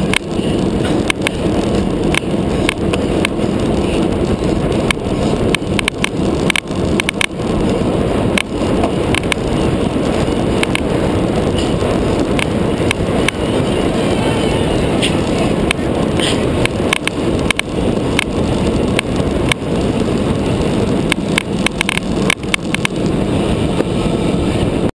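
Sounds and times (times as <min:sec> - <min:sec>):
wind rushing over microphone: 0:00.0 - 0:24.9
bike clicks and knocks: 0:04.8 - 0:07.4, 0:08.3 - 0:09.4, 0:10.6 - 0:10.8.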